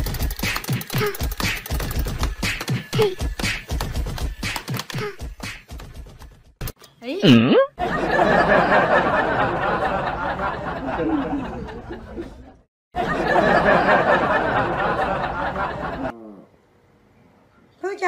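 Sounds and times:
group laughter: 0:07.8 - 0:16.2.

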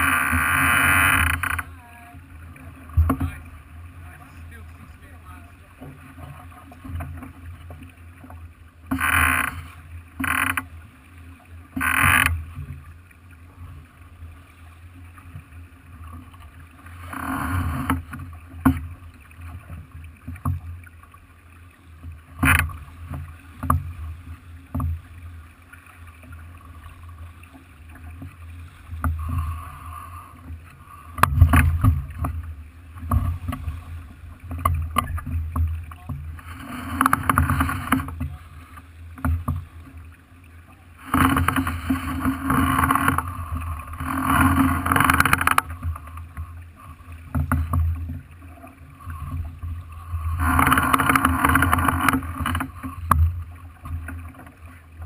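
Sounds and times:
wind and water along hull: 0:00.0 - 0:55.0.

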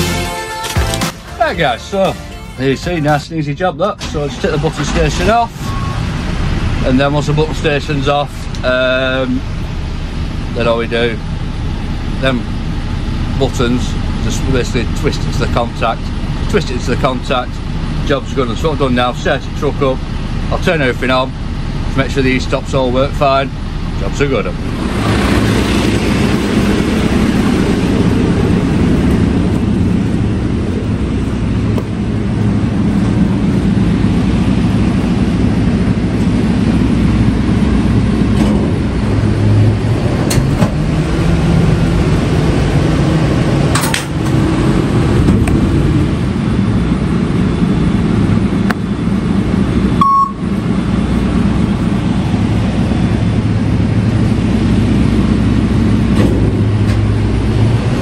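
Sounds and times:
diesel truck engine with hydraulics: 0:00.0 - 0:58.0
brief beep: 0:05.6 - 0:06.0, 0:50.0 - 0:50.5.

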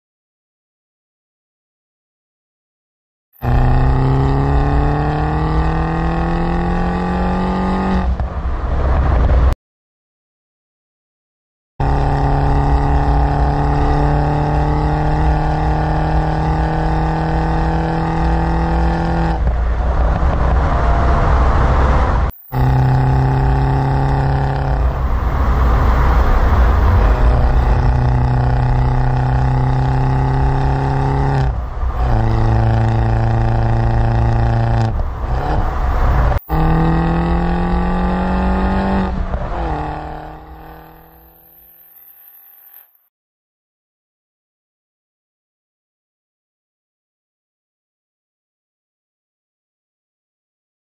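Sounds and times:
car engine revving: 0:03.4 - 0:09.6, 0:11.8 - 0:43.0.

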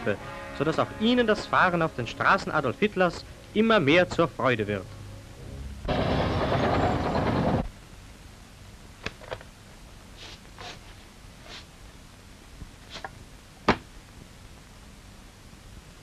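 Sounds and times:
film soundtrack hiss: 0:00.0 - 0:16.0.

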